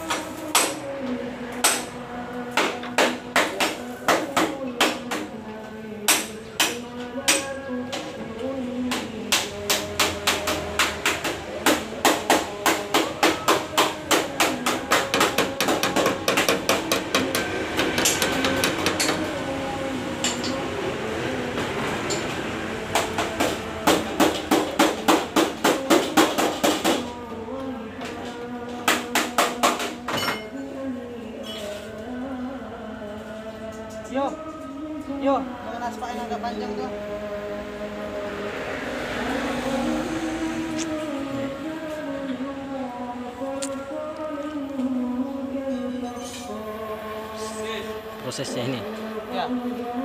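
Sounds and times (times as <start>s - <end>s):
hammer striking steel: 9.3s - 19.3s, 29.0s - 30.5s.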